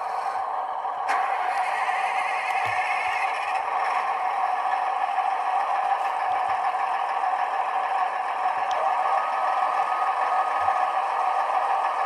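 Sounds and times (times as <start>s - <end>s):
diesel engine through small loudspeaker: 0.0s - 12.0s.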